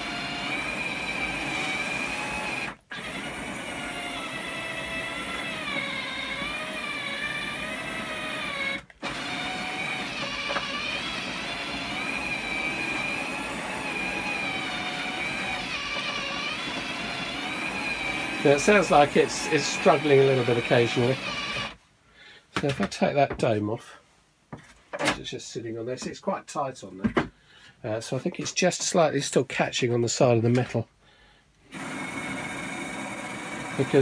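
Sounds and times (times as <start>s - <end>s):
motor whining: 0.0s - 21.8s, 31.6s - 34.0s.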